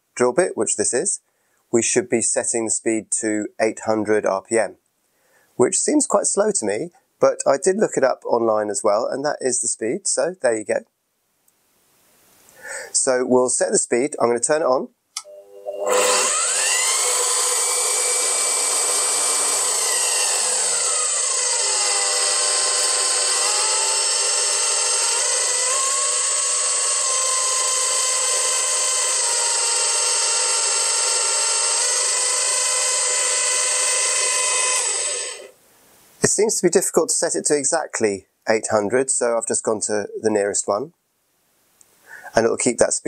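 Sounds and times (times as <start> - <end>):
drill press motor whining: 15.2 - 35.5.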